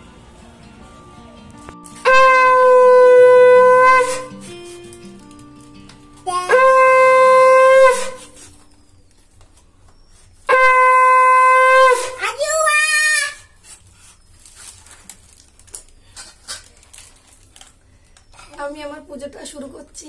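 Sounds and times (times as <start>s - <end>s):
conch shell blast: 2.0s - 4.9s, 6.5s - 8.7s, 10.5s - 12.2s.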